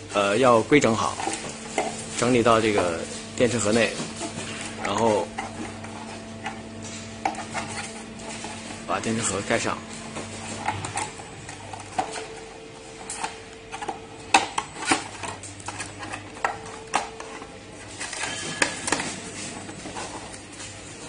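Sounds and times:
plastic parts clicking and knocking: 13.1s - 19.1s.

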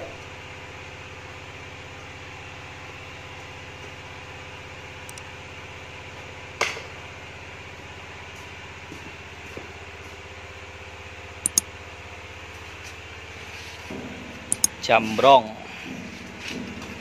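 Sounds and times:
quick clicks: 14.5s - 14.8s.

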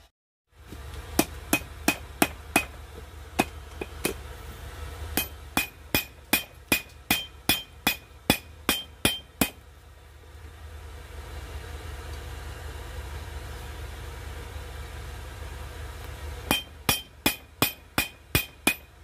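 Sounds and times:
steady low hum: 0.5s - 19.0s
hammer blows on anvil: 5.2s - 9.6s, 16.5s - 18.9s.

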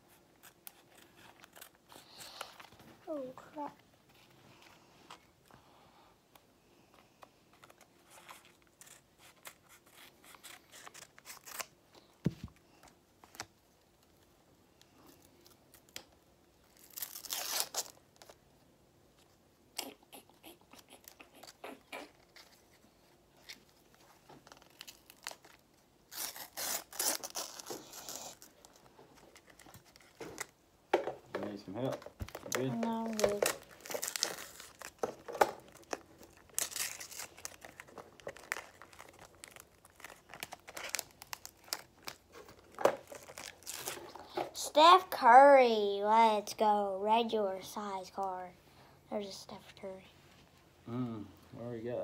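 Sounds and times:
wrapper crinkling: 16.7s - 18.4s, 31.8s - 44.4s
stickers rustling: 31.8s - 44.4s.

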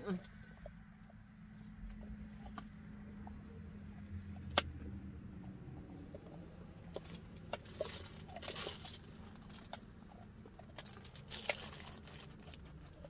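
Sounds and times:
light rustling and crinkling: 10.7s - 13.0s.

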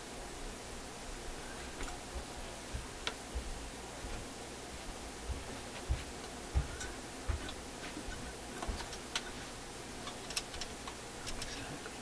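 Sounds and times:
small metal clicks and ticks: 10.0s - 12.0s.

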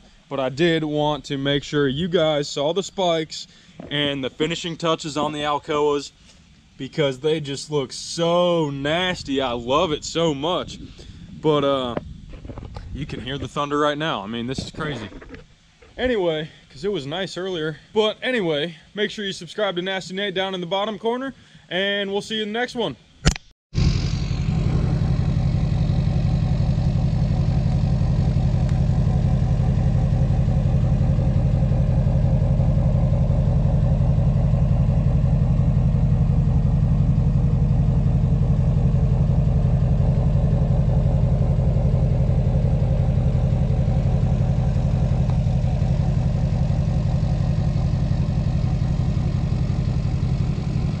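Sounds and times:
diesel engine idling: 23.8s - 51.0s.

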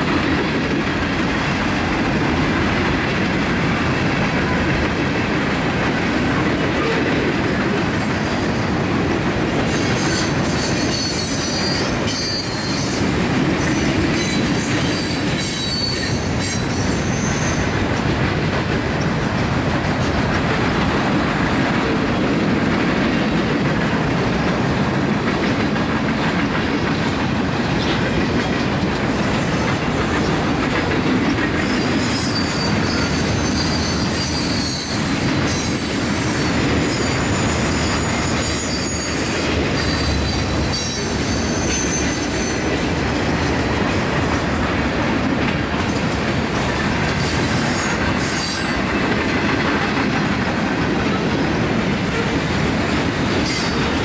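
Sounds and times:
freight train rolling past: 0.0s - 54.0s
wheel flanges squealing: 31.6s - 42.9s.

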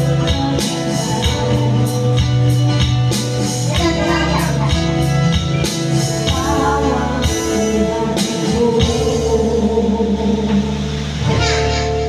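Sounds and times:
woman singing: 0.0s - 5.2s, 6.0s - 10.8s
backing music with bass: 0.0s - 12.0s.

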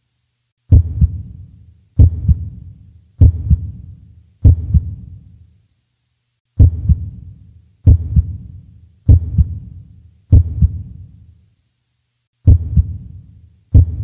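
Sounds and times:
heartbeat double thump: 0.7s - 1.4s, 2.0s - 2.6s, 3.2s - 3.8s, 4.4s - 5.0s, 6.6s - 7.2s, 7.9s - 8.5s, 9.1s - 9.7s, 10.3s - 10.9s, 12.5s - 13.1s, 13.7s - 14.0s.

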